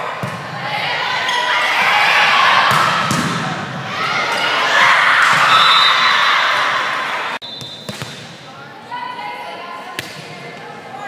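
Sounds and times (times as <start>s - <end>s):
crowd and players shouting and cheering: 0.0s - 11.0s
volleyball being hit: 2.7s - 3.6s.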